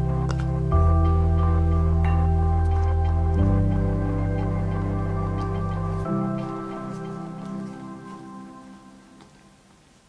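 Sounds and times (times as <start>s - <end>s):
gentle background music: 0.0s - 10.0s.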